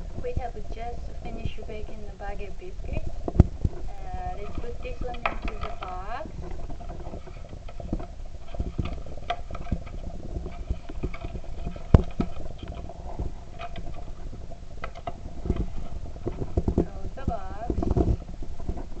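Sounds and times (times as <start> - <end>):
taps and rustles: 3.2 - 19.0.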